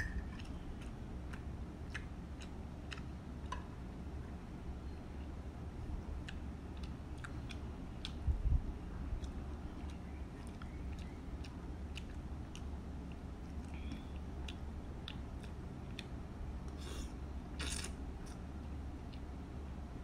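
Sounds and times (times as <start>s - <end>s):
wet chewing: 0.0s - 3.6s, 6.1s - 8.3s, 9.1s - 18.4s.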